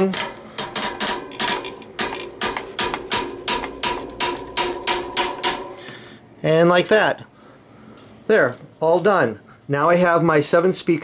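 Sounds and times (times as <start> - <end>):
torque wrench ratcheting clicks: 8.4 - 9.2.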